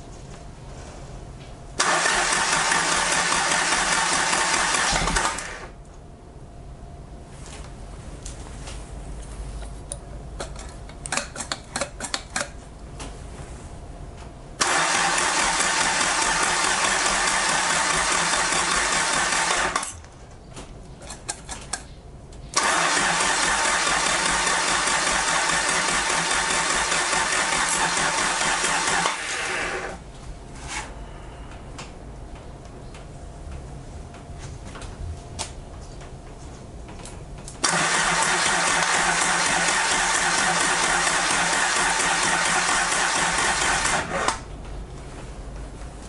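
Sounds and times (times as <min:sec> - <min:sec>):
engine cranking on starter: 0:01.8 - 0:05.8, 0:14.6 - 0:19.9, 0:22.6 - 0:30.0, 0:37.6 - 0:44.4.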